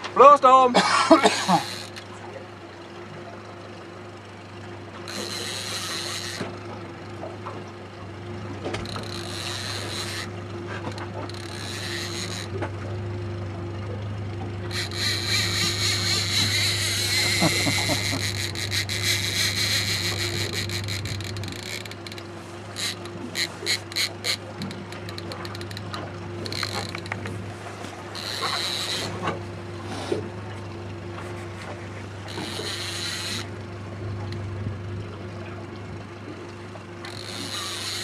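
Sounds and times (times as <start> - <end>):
steady low hum: 0.8 - 38.0
fishing reel drag buzzing: 1.1 - 2.0, 5.0 - 6.7, 8.6 - 13.0, 13.8 - 30.2, 31.4 - 34.5, 37.0 - 38.0.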